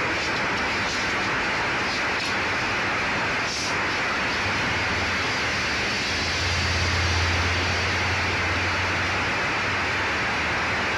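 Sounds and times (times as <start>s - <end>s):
steady broad hiss: 0.0s - 10.9s.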